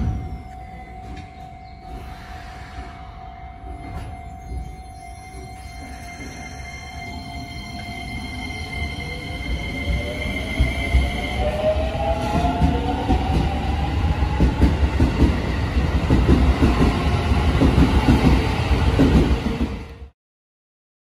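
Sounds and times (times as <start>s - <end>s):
steady high tone: 0.0s - 14.4s
wheels rumbling and knocking on rails: 10.4s - 19.8s.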